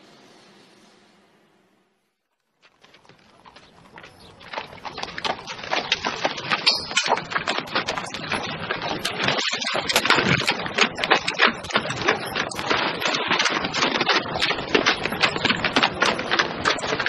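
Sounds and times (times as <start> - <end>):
hooves clip-clopping: 2.4 - 17.0.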